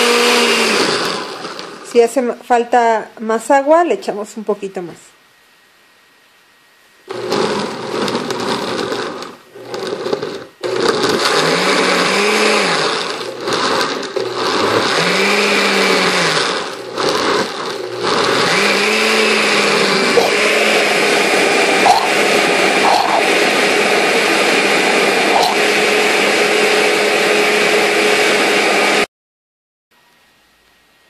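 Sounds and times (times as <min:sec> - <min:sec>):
electric blender running: 0:00.0 - 0:01.9, 0:07.1 - 0:29.1.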